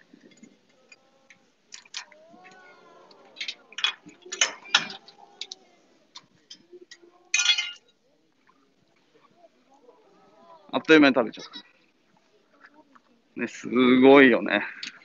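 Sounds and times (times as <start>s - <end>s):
metal cage bars clinking and rattling: 3.3s - 5.5s.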